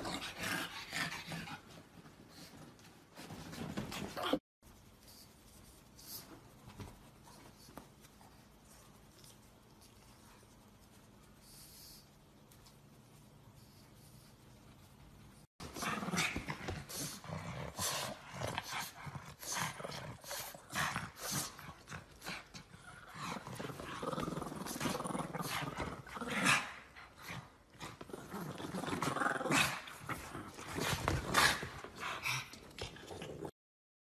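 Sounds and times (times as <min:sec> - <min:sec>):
dogs growling: 0:00.0 - 0:01.6, 0:15.6 - 0:33.5.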